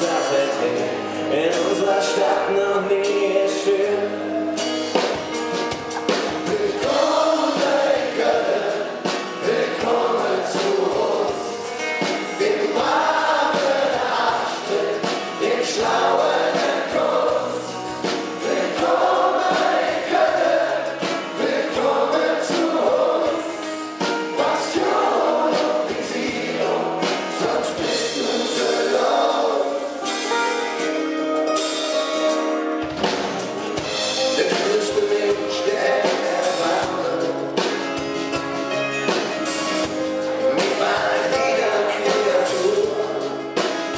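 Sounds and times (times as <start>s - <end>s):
acoustic guitar: 0.0s - 43.9s
men singing in chorus: 6.4s - 30.0s, 34.2s - 37.5s, 40.5s - 43.3s.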